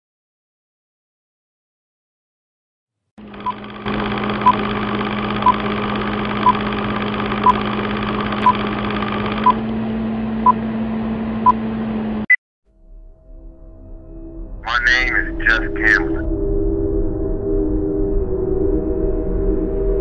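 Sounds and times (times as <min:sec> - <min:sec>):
film projector whir and rattle: 0:03.2 - 0:12.2.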